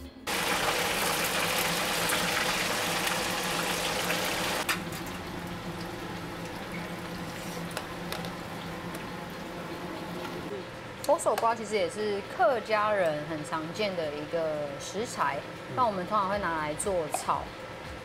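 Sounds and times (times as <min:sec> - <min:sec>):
deep-frying sizzle: 0:00.3 - 0:10.5.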